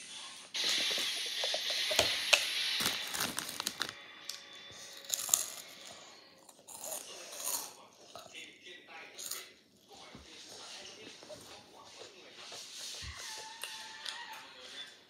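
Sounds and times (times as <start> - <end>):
plastic bottle crinkling: 0.6 - 4.0.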